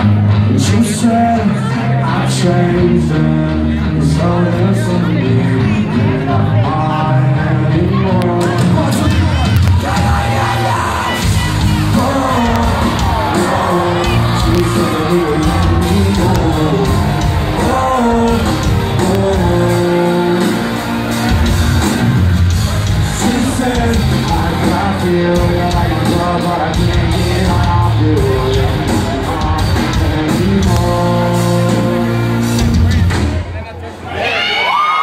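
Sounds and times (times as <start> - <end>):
electric guitar: 0.0 - 33.4
drums: 0.0 - 35.0
live rock band playing: 0.0 - 35.0
person singing: 0.3 - 22.2, 22.8 - 33.0.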